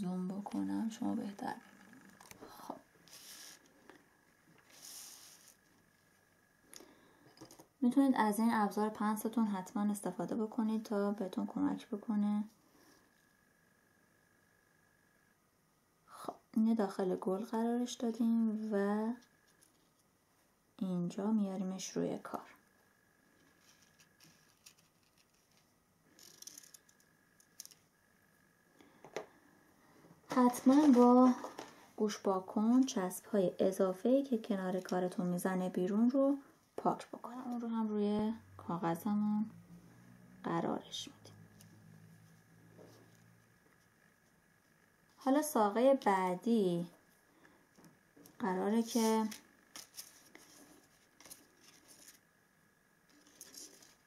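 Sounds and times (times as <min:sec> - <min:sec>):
soft paper rustle: 0:03.0 - 0:03.7, 0:04.6 - 0:05.7, 0:23.4 - 0:26.9, 0:48.8 - 0:52.2, 0:53.1 - 0:54.0
paper rustling and ticks: 0:49.0 - 0:52.2.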